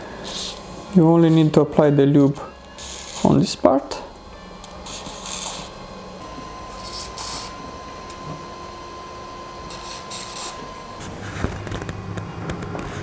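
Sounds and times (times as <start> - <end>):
faint steady high tone: 1.5 - 5.4.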